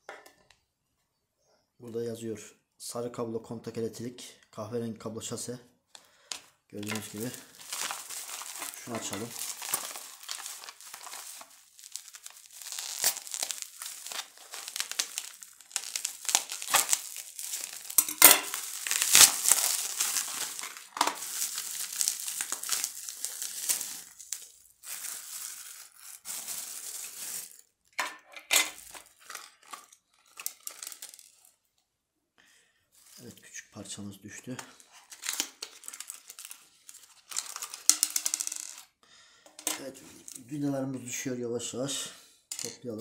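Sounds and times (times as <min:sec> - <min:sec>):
plastic packaging crinkling: 0:06.3 - 0:27.8, 0:28.5 - 0:31.6, 0:34.5 - 0:38.9, 0:39.6 - 0:40.6.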